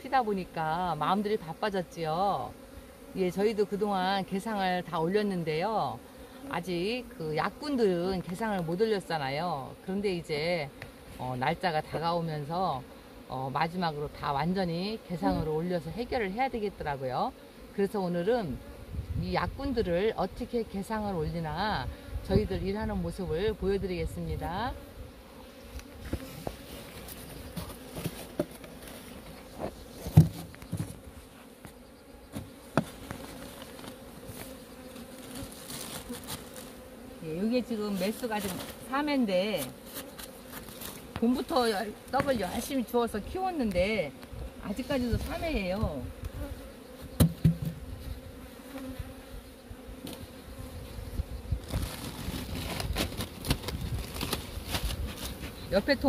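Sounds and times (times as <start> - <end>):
honeybees buzzing: 0.0 - 56.0
hive cover knocks and rustles: 26.0 - 31.2, 32.3 - 36.7, 47.0 - 47.9, 51.6 - 55.4.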